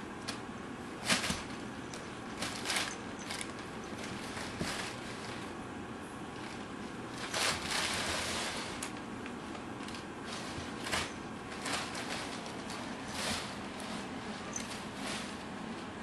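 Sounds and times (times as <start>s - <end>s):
paper crinkling and rustling: 1.0s - 5.6s, 6.3s - 16.0s.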